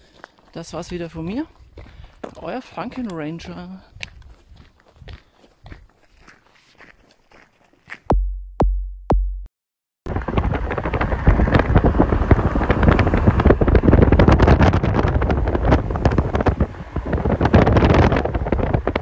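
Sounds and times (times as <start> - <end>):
wind buffeting microphone: 0.6 - 5.9, 10.1 - 19.0
heavy booming thumps: 8.1 - 9.5.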